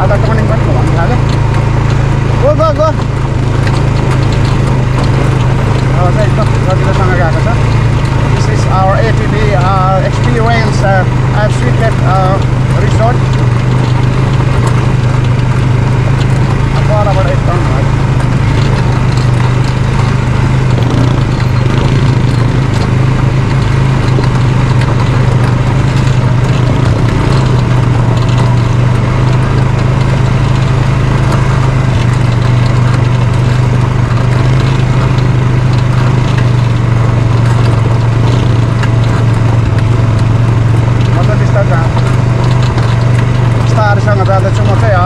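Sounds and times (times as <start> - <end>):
quad bike engine droning: 0.0 - 45.0
tyres riding over gravel: 0.0 - 45.0.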